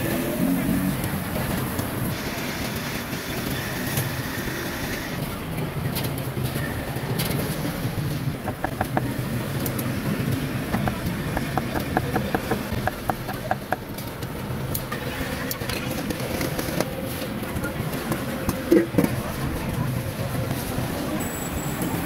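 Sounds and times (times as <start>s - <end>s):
traffic rumble: 0.0s - 22.0s
cleaver chopping on wooden block: 8.5s - 9.1s, 10.8s - 13.8s.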